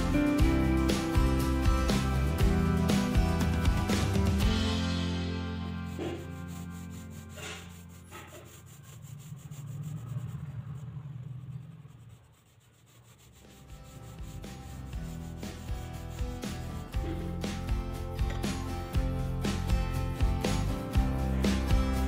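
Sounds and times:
quiet background music: 0:00.0 - 0:22.0
pencil scratching on paper: 0:05.4 - 0:17.8.

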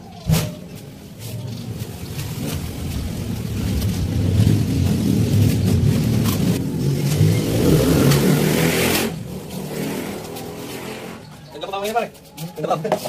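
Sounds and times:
motorcycle engine revving: 0:01.9 - 0:11.4.

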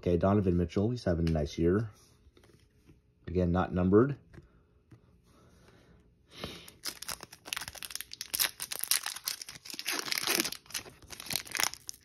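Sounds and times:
foil wrapper crinkling: 0:06.6 - 0:12.0.

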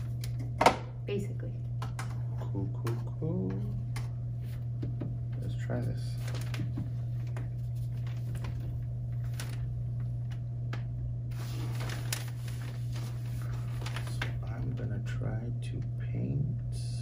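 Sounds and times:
low room hum: 0:00.0 - 0:17.0.

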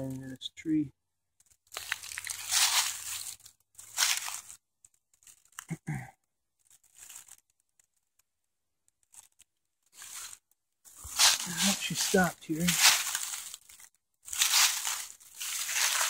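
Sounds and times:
footsteps crunching dry leaves: 0:01.7 - 0:04.6, 0:06.8 - 0:07.4, 0:10.0 - 0:16.0.

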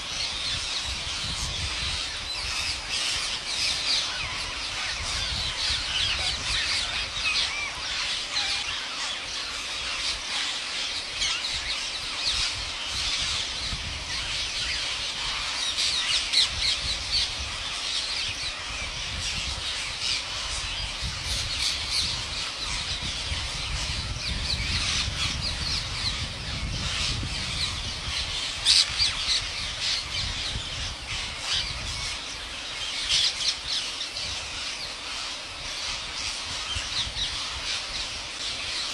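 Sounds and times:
parakeets screeching: 0:00.0 - 0:38.9.

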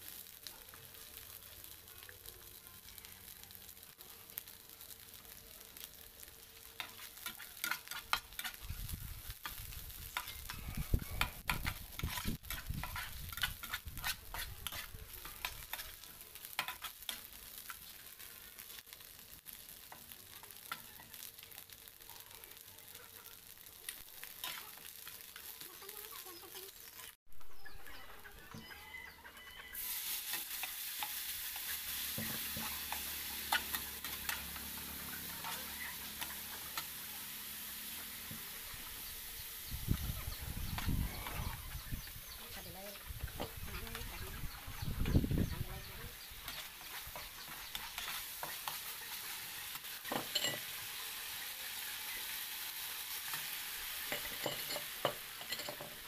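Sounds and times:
food sizzling: 0:00.0 - 0:56.0
metal spatula scraping a pan: 0:06.8 - 0:17.8, 0:24.3 - 0:25.6, 0:29.2 - 0:38.6, 0:46.2 - 0:56.0.

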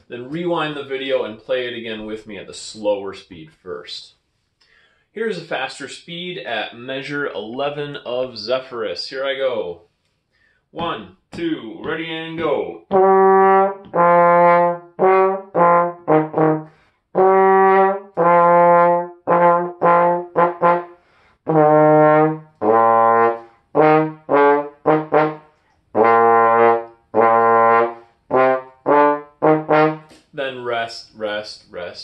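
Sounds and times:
trombone playing melody: 0:12.8 - 0:30.2.

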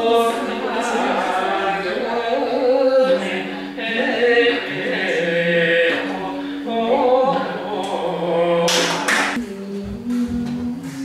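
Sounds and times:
folk song with long held notes: 0:00.0 - 0:11.0.

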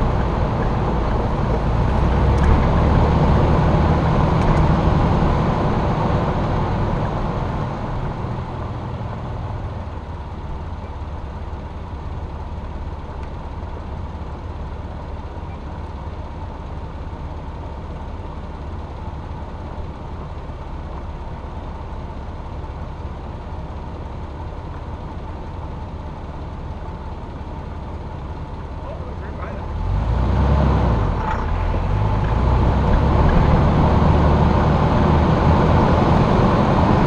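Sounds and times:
engine running steadily: 0:00.0 - 0:37.0
road noise: 0:00.0 - 0:37.0.

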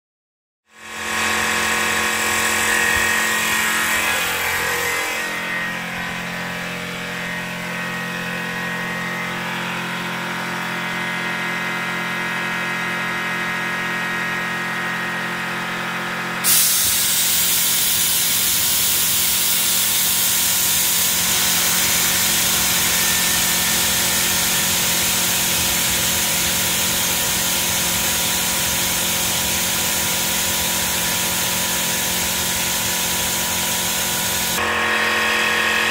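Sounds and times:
air compressor humming: 0:00.8 - 0:35.9
compressed air hissing: 0:16.4 - 0:34.6.

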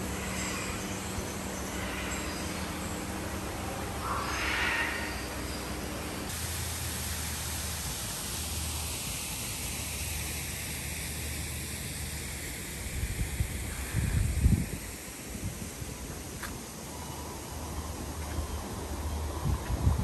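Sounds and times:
water falling down fountain wall: 0:06.3 - 0:16.9
wind buffeting microphone: 0:12.9 - 0:16.1, 0:19.3 - 0:20.0.

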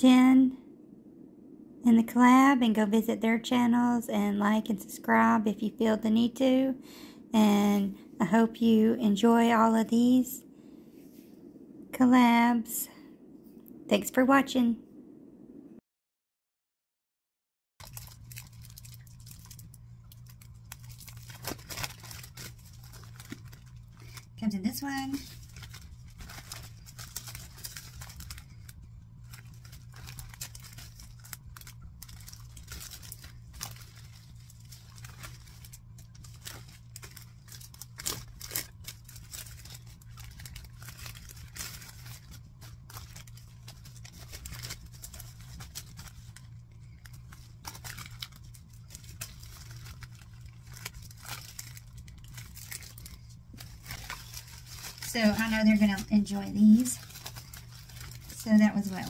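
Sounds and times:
low hum: 0:00.0 - 0:14.0, 0:17.8 - 0:59.0
plastic bags crinkling: 0:17.8 - 0:59.0.

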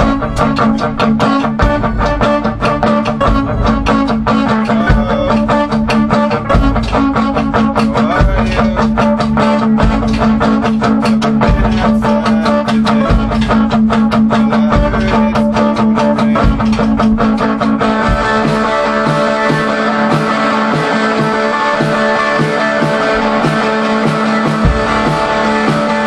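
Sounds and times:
drum beat with cymbals: 0:00.0 - 0:26.0
electric guitar: 0:00.0 - 0:26.0.

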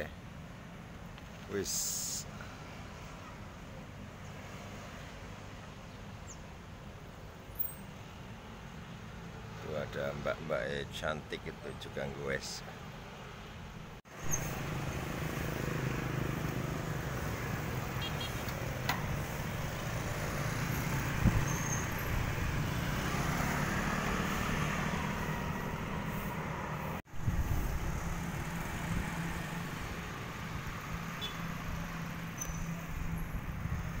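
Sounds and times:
road traffic noise: 0:00.0 - 0:34.0
motorbikes passing: 0:14.1 - 0:34.0.

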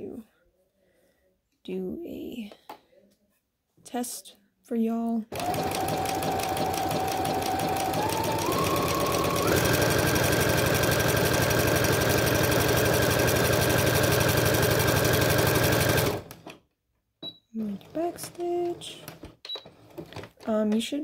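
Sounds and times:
sewing machine stitching: 0:05.3 - 0:16.6, 0:17.6 - 0:20.6.

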